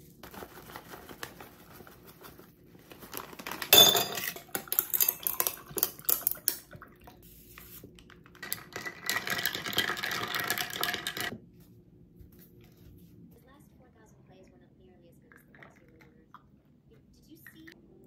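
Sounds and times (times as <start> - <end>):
stirrer rattling ice in glass: 3.2 - 6.7, 8.2 - 11.3
ice cubes clinking into glass: 3.4 - 6.7, 8.4 - 11.3.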